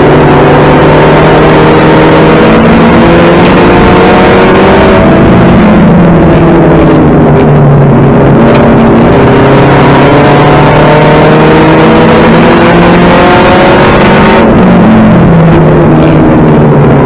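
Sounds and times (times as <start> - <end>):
race car engine accelerating: 0.0 - 17.0.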